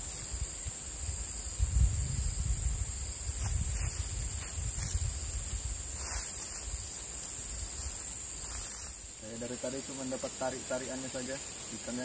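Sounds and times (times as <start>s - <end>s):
high-pitched insect drone: 0.0s - 12.0s
low rumble on microphone: 0.3s - 6.9s.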